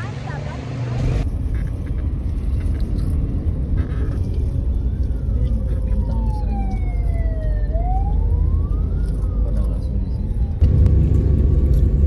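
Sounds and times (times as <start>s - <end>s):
car interior rumble: 0.0s - 7.2s, 9.0s - 12.0s
siren wailing: 4.6s - 10.6s.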